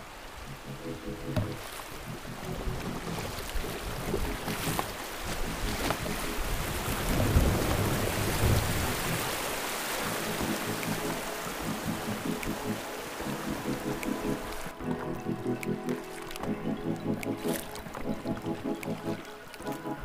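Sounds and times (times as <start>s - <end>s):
river water rushing: 0.0s - 20.0s.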